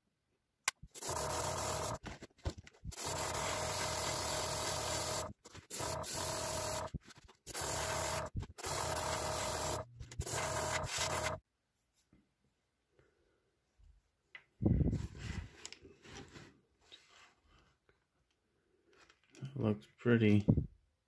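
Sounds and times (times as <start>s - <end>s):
airbrush air hissing: 0.9s - 2.0s, 2.9s - 6.9s, 7.5s - 11.4s.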